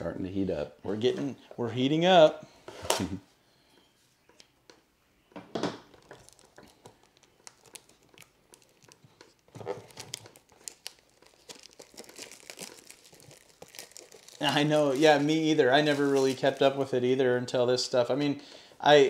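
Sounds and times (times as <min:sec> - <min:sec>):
plastic wrap crinkling and tearing: 0:05.9 - 0:16.9.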